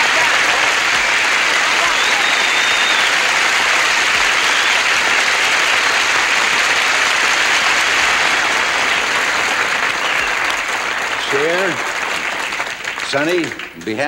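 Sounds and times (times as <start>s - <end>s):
audience applauding: 0.0s - 14.0s
high whistle: 1.8s - 3.3s, 4.3s - 5.1s.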